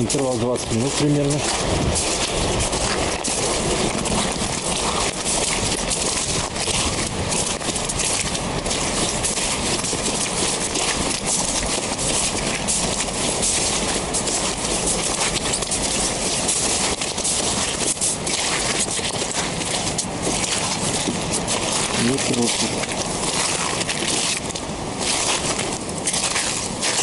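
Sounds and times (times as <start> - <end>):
footsteps crunching on snowy ice: 0.0 - 27.0.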